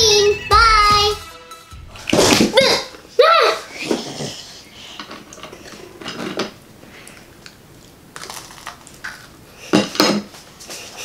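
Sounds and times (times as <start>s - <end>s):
cookie crunching: 7.1s - 9.4s.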